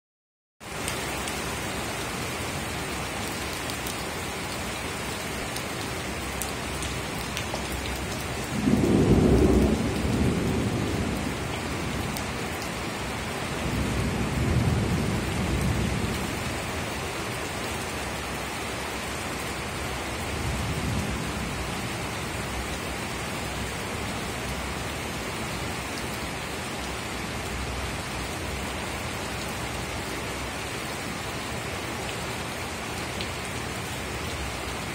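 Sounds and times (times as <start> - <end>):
heavy rain on wooden deck: 0.6 - 34.9
thunder rumbling: 8.4 - 12.3, 13.6 - 16.5.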